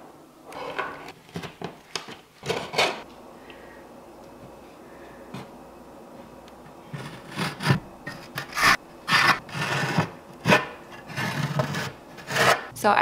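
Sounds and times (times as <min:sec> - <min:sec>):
putty knife scraping wall: 0:06.9 - 0:12.7.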